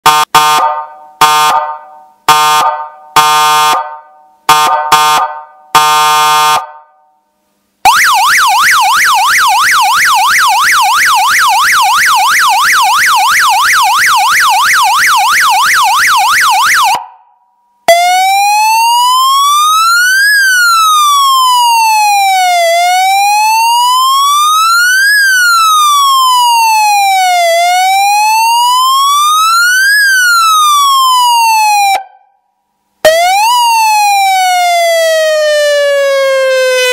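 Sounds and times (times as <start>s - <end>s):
electronic siren: 33.0s - 36.9s.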